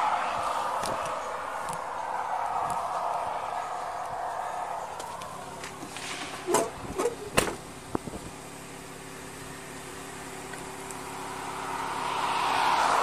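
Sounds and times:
car passing on highway: 0:00.0 - 0:13.0
car door knocks and clicks: 0:06.5 - 0:08.1.

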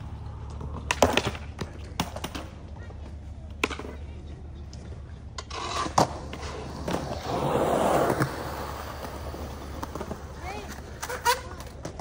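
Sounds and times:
skateboard wheels rolling on concrete: 0:00.0 - 0:12.0
skateboard clacks: 0:00.2 - 0:04.0, 0:04.7 - 0:12.0.

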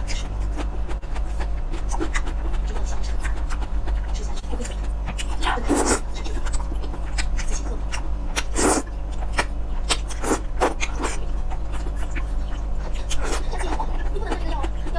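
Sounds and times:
wet chewing: 0:00.0 - 0:14.9
noodles slurped: 0:08.4 - 0:08.9.

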